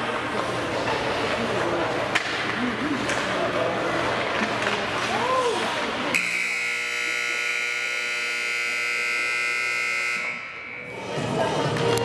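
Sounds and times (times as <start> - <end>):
scoreboard buzzer: 6.1 - 10.9.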